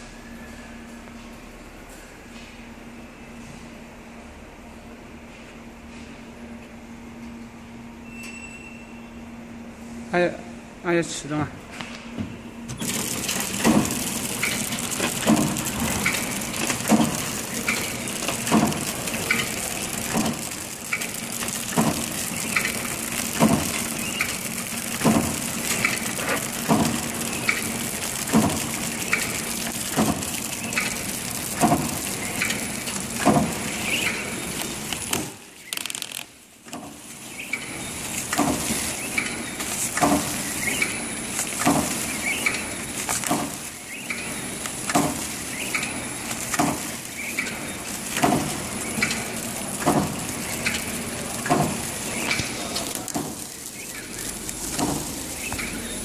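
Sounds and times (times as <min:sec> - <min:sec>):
packing machine motor hum: 0:11.9 - 0:56.0
machine sealing clacking: 0:12.7 - 0:56.0.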